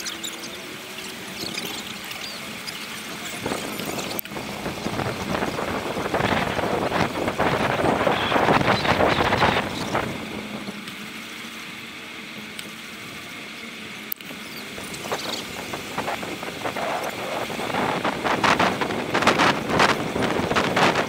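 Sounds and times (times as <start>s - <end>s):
bicycle riding noise: 0.0s - 21.0s
wind buffeting microphone: 1.2s - 10.8s, 14.6s - 21.0s.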